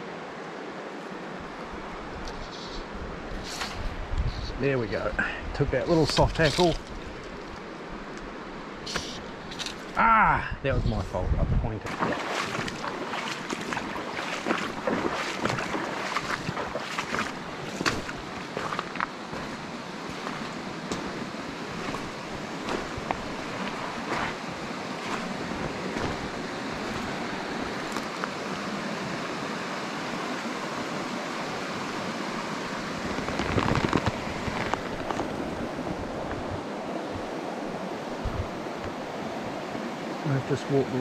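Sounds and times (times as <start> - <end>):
river running over stones: 0.0 - 3.9, 4.7 - 10.4, 11.8 - 41.0
footsteps crunching on gravel: 11.9 - 28.4, 33.0 - 36.5.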